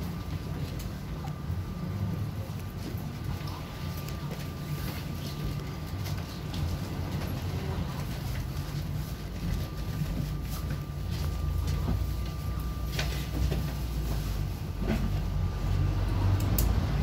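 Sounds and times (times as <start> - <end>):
bus cabin low rumble: 0.0 - 17.0.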